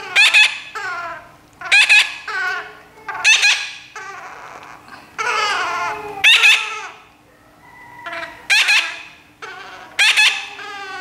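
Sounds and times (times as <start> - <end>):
baby parrots squawking: 0.0 - 7.1, 8.0 - 11.0.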